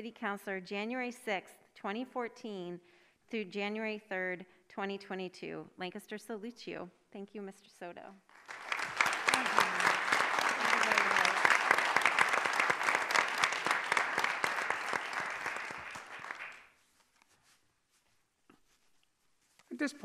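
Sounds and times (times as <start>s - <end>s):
audience applauding: 8.3s - 16.8s.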